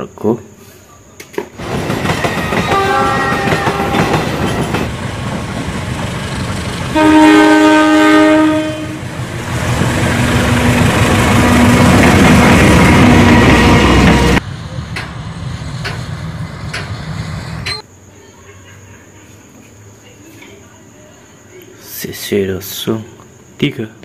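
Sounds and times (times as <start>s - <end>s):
locomotive engine and wheels on rails: 1.2s - 19.7s
locomotive multi-tone horn: 2.3s - 4.7s, 6.9s - 9.1s.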